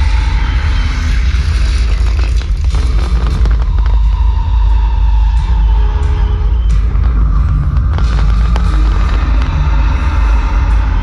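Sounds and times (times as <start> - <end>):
fireworks low rumble: 0.0 - 11.0
fireworks cracking and crackling: 1.4 - 5.9, 6.9 - 11.0.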